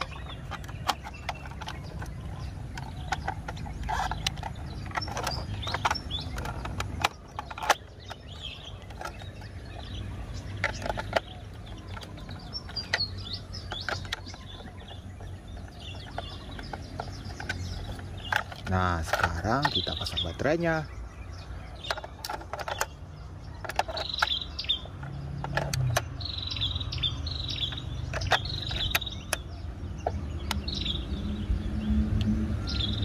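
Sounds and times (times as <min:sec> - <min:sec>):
plastic toy clicks and taps: 0:00.0 - 0:09.5, 0:10.6 - 0:20.2, 0:21.8 - 0:23.0, 0:23.6 - 0:26.1
birds chirping: 0:00.0 - 0:33.0.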